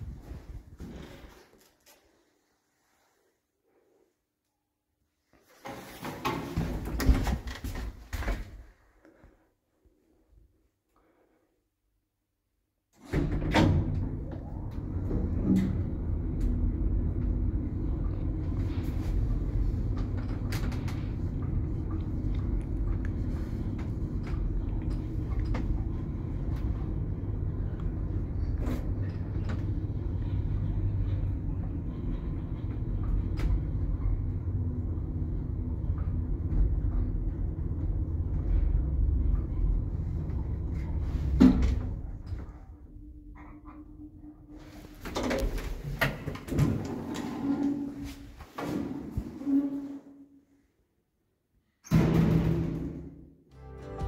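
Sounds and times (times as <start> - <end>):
lift low rumble: 0.0 - 1.3, 13.8 - 44.9.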